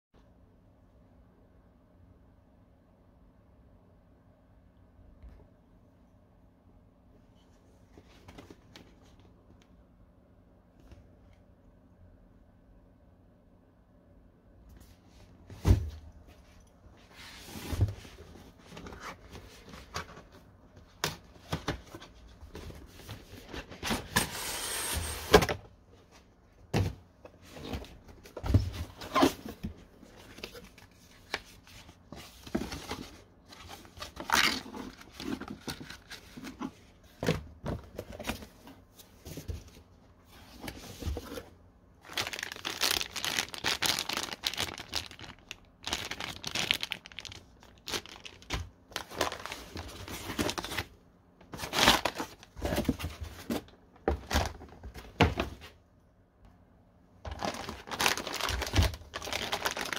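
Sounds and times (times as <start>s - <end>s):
packaging crinkling: 42.0s - 50.9s, 57.3s - 59.9s.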